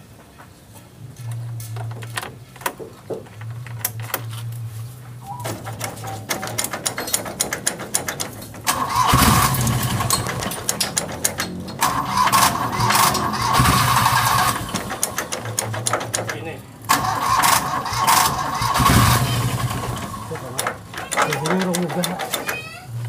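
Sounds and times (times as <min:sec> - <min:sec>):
starter motor cranking engine: 0:05.6 - 0:23.0.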